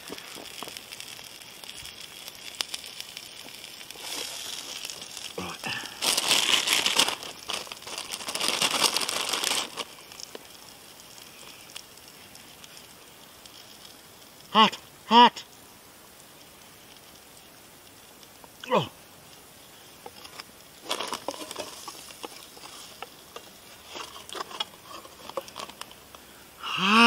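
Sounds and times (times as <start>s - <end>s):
campfire crackling: 0.0s - 27.0s
plastic packet crinkling: 2.3s - 10.5s, 20.0s - 26.1s.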